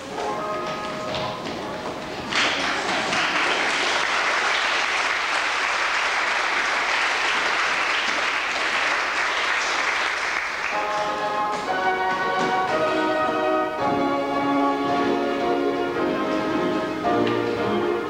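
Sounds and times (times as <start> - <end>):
audience applause: 2.3 - 11.0.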